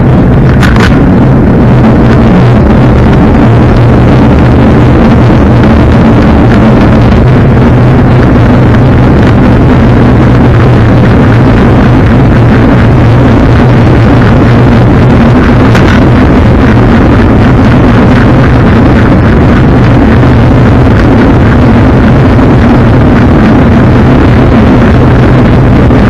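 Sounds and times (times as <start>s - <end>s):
low drone: 0.0s - 26.0s
wind roar on microphone: 0.0s - 26.0s.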